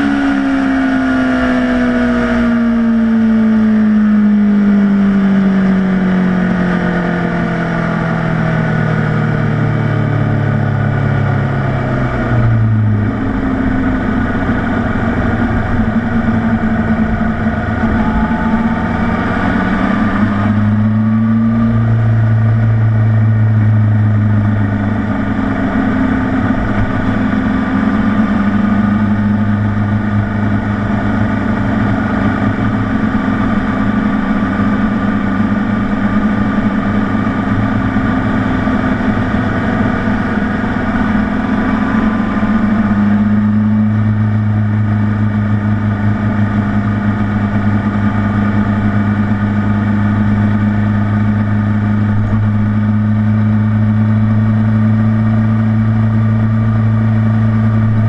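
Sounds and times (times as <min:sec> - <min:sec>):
motorcycle engine running: 0:00.0 - 0:58.0
road noise: 0:00.0 - 0:58.0
wind rush: 0:12.1 - 0:32.2.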